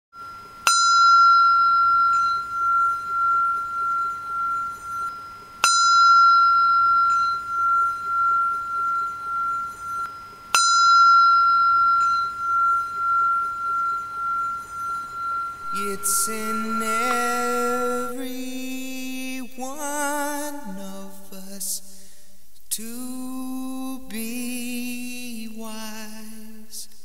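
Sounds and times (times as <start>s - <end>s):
bell ringing high tone: 0.2s - 20.8s.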